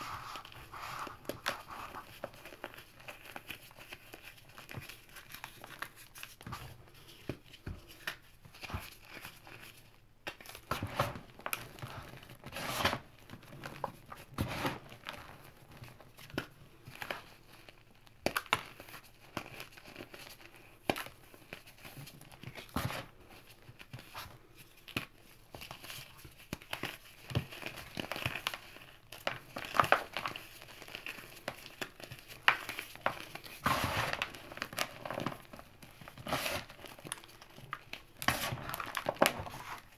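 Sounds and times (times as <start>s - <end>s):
hands crunching chalk chunks: 24.9s - 39.9s.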